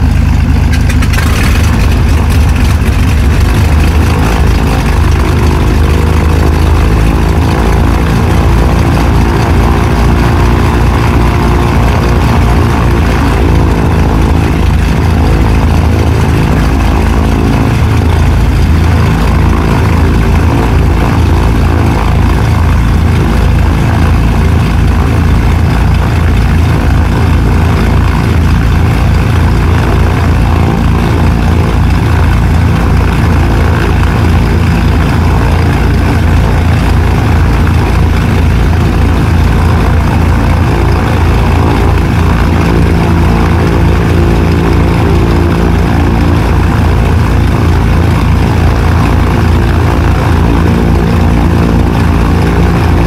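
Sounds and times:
aircraft engines throbbing: 0.0 - 53.0.

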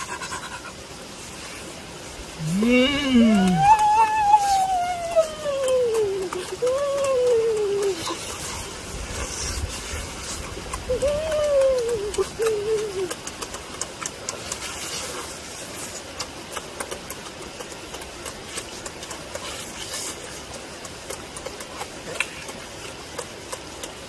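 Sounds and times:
lip smacks: 0.0 - 1.6, 2.4 - 24.0
people chewing meat: 0.0 - 24.0
person humming mmm: 2.4 - 8.7, 10.6 - 14.3.

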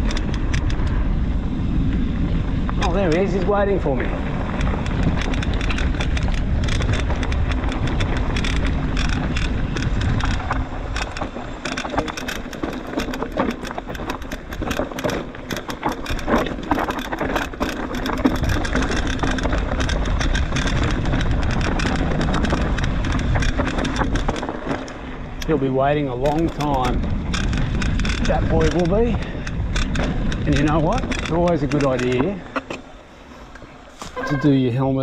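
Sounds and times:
bike rattling and clicking: 0.0 - 35.0
bike tyres on dirt trail: 0.0 - 35.0
wind rumble on microphone: 0.0 - 35.0.

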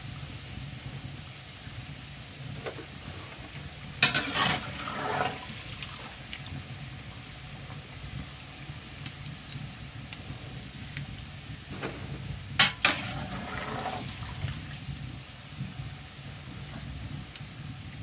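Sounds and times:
dough sizzling in hot oil: 0.0 - 18.0
quiet frying: 0.0 - 18.0
faint clicks: 9.0 - 11.2.

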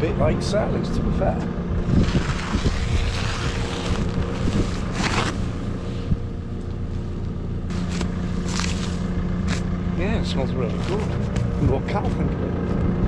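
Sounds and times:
engine idling: 0.0 - 13.0
wind noise on microphone: 1.0 - 6.4
plastic wrap rustling: 1.8 - 6.2, 7.7 - 9.7.

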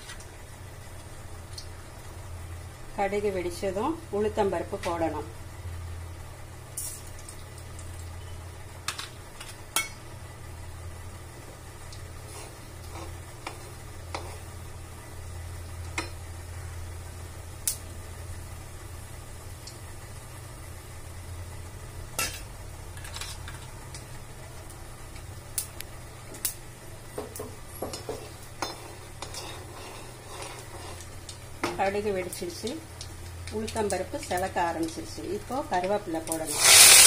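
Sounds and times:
mustard seeds popping in hot oil: 6.7 - 16.4, 17.4 - 18.8, 22.1 - 37.0.

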